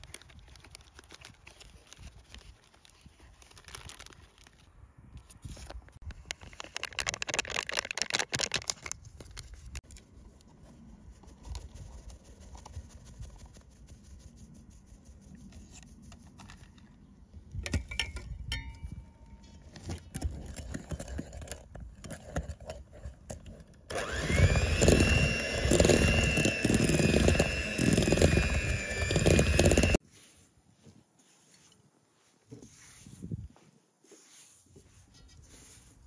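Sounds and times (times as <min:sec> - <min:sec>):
electric hand mixer whining: 0:23.9 - 0:30.0
flour sifting through metal sieve: 0:34.1 - 0:36.0.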